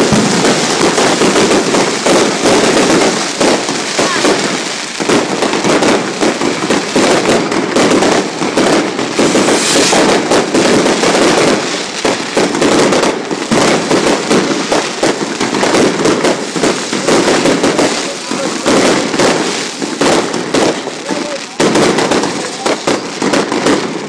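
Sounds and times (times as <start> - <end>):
fireworks bangs and crackles: 0.0 - 24.0
sharp hiss: 9.1 - 10.3.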